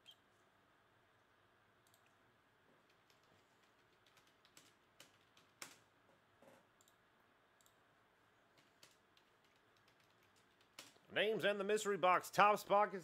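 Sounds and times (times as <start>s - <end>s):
faint keyboard typing: 1.8s - 11.1s.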